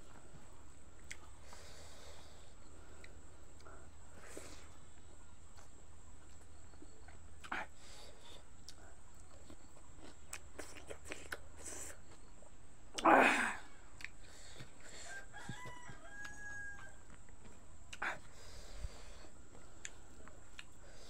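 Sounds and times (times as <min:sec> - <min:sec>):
rooster crowing: 0:14.9 - 0:17.2.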